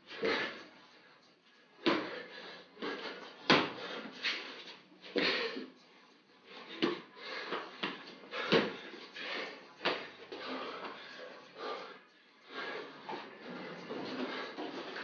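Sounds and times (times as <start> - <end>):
feet and hands thumping on floor: 1.8 - 5.7, 6.6 - 11.0
soft scuffs: 2.8 - 5.3.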